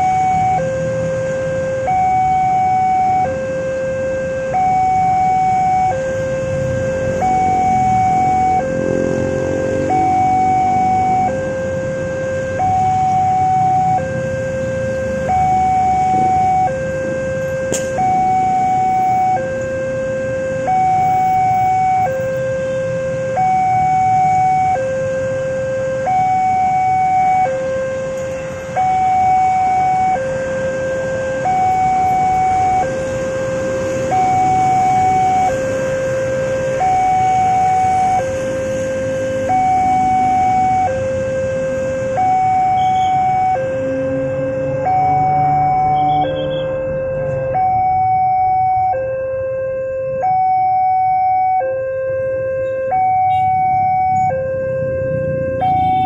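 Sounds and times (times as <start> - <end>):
two-tone crossing alarm: 0.0 - 56.0
motorcycle engines running: 6.5 - 13.4.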